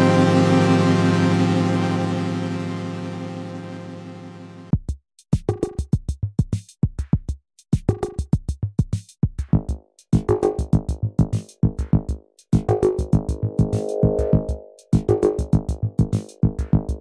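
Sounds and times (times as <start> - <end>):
drum machine beat: 4.8 - 15.8.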